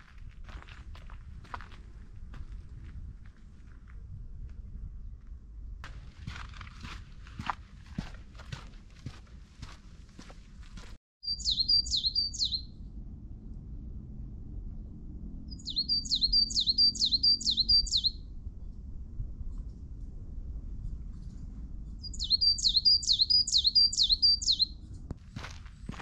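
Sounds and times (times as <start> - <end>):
footsteps on trail: 0.0 - 4.0, 5.8 - 11.0, 25.2 - 26.0
songbird singing high notes: 11.2 - 12.7, 15.5 - 18.2, 22.1 - 24.7.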